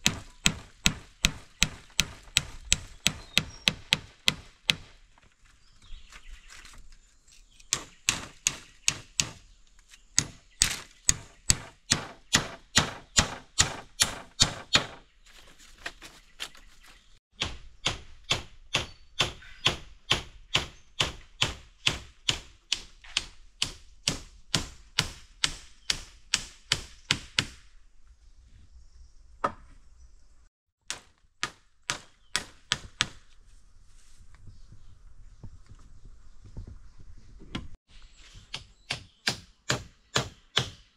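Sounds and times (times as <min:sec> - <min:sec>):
blade chopping bamboo: 0:10.2 - 0:15.1.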